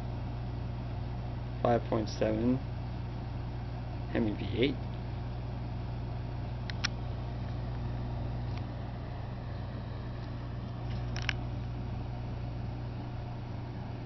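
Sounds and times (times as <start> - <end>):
low room hum: 0.0 - 14.0
light clicks: 6.6 - 7.0.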